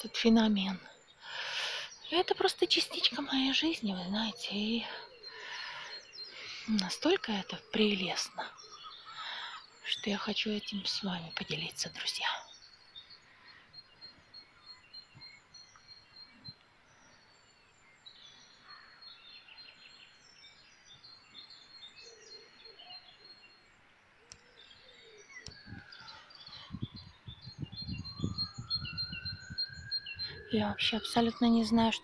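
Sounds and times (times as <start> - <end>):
songbirds singing: 0.0 - 32.0
low thumping rumble on microphone: 25.5 - 26.0, 26.6 - 29.8.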